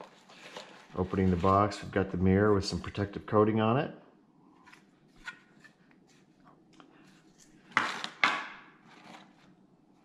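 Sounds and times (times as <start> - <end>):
cardboard and foam rustling: 0.0 - 3.0, 8.8 - 9.6.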